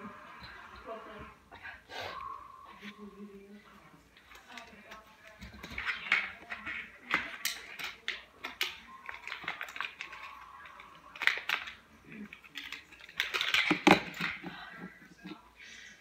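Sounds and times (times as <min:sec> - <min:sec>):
small objects clicking and rustling: 0:04.1 - 0:15.4.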